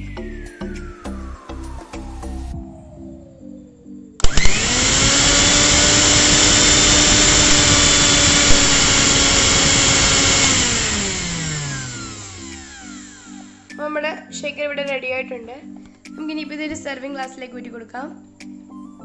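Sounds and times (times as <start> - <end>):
mixer grinder motor whine: 4.2 - 13.8.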